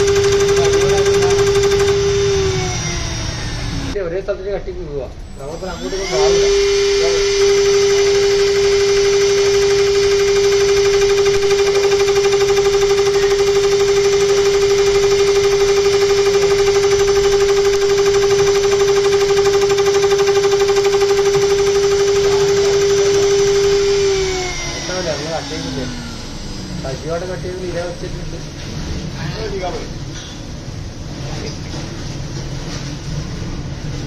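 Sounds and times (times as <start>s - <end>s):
cutter pulsing on metal: 0.0s - 4.0s, 5.3s - 28.2s
machine spindle high-pitched whine: 0.0s - 4.0s, 5.1s - 30.4s.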